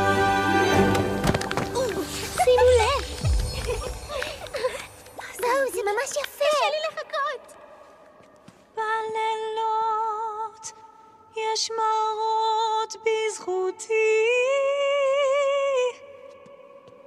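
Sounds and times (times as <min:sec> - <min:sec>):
woman singing with vibrato: 0:08.7 - 0:17.0.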